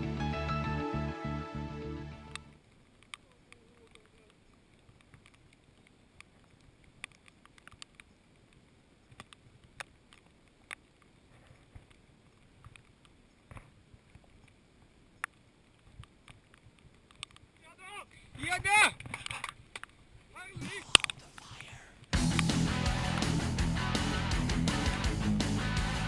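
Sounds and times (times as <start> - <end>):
raindrops ticking on camera: 2.3 - 17.7.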